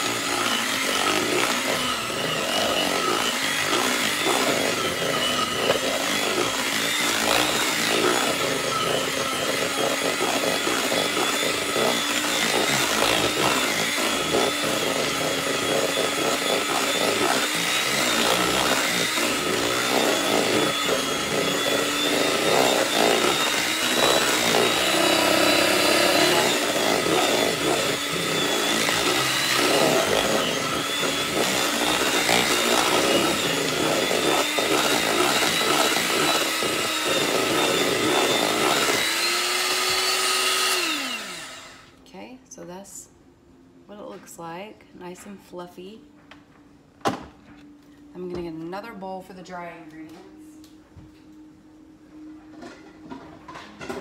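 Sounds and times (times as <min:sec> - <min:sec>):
electric hand mixer running: 0:00.0 - 0:42.0.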